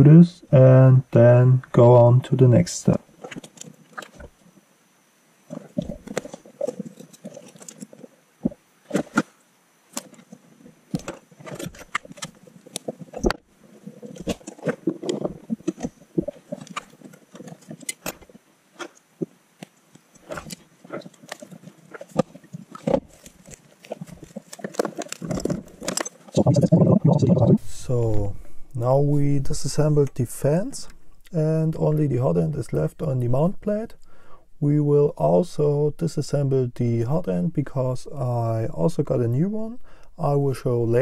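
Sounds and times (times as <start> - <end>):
rustling of parts and wires: 2.9 - 4.5, 5.4 - 26.5.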